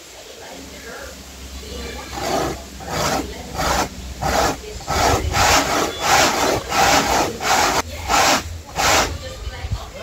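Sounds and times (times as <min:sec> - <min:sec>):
corn rasping on metal grater: 0:02.0 - 0:09.2.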